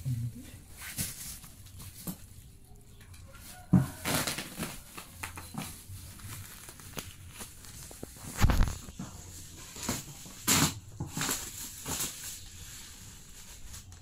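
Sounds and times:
bubble wrap crinkling: 0.5s - 14.0s.

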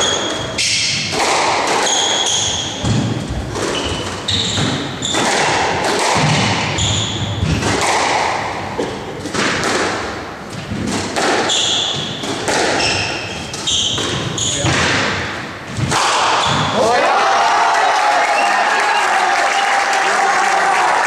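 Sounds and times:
squash ball impacts: 0.0s - 16.9s
shoes squeaking on wooden floor: 1.8s - 5.4s, 6.6s - 7.7s, 11.4s - 14.8s.

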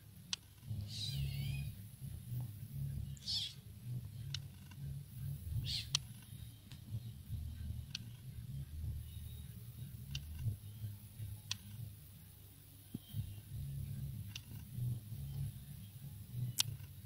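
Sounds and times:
low rumble: 0.7s - 12.0s
kitten mewing: 0.9s - 1.6s, 3.2s - 3.6s
faint clicks: 9.1s - 10.6s, 11.2s - 11.8s, 14.2s - 15.5s, 16.4s - 17.0s.

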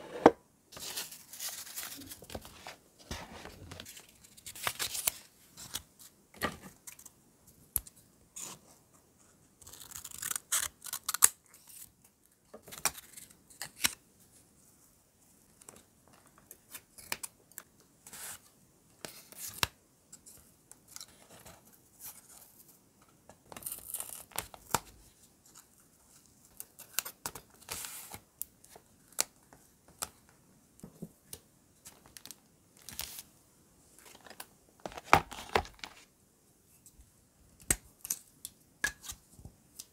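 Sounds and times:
paper rustling and crinkling: 0.7s - 5.9s, 34.0s - 36.1s.

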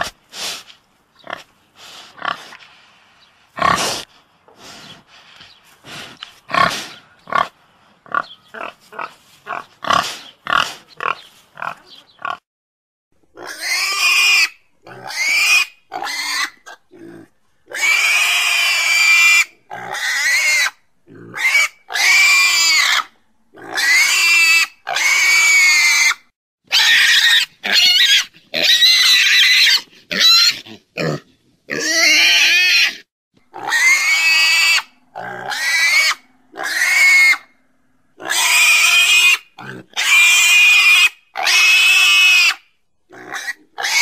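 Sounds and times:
pig squealing: 13.4s - 37.6s, 38.2s - 44.0s.

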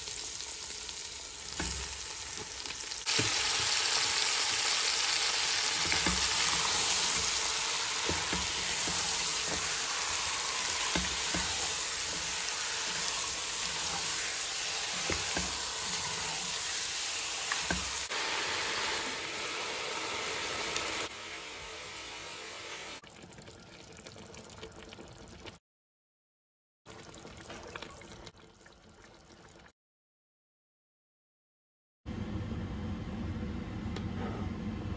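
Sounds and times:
chicken sizzling in hot oil: 0.0s - 23.0s
pot knocks and scrapes: 8.0s - 16.4s.

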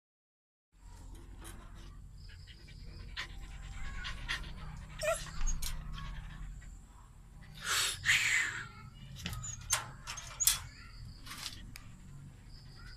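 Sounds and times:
dog panting: 2.2s - 7.6s.

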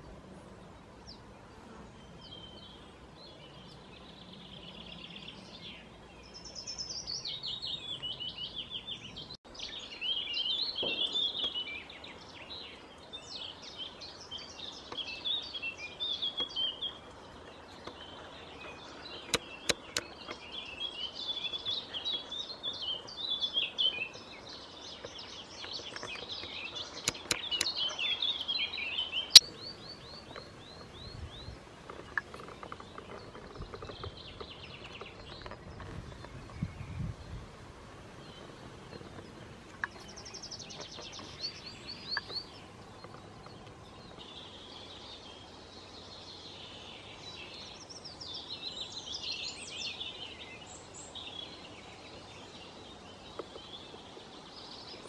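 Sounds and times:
songbirds singing: 0.0s - 55.0s
sharp clicks: 25.6s - 27.8s.

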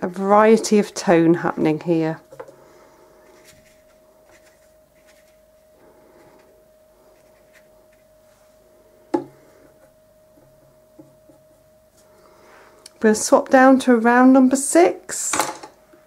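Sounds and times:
faint steady hum: 0.0s - 16.0s
brush dabbing on paper: 3.2s - 6.4s, 7.0s - 8.4s.

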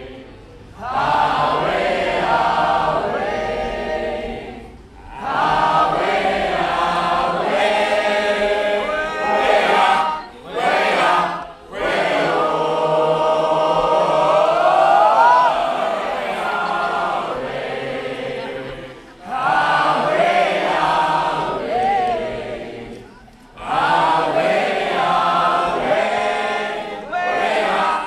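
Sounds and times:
group singing in harmony: 0.0s - 28.0s.

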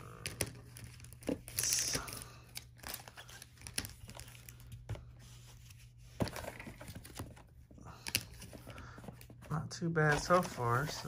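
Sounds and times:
cards clicking and tapping: 0.1s - 5.0s.

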